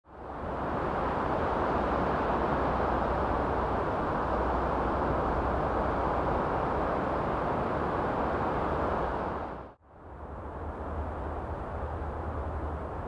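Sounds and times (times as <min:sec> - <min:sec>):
sea surf washing on beach: 0:00.2 - 0:09.8.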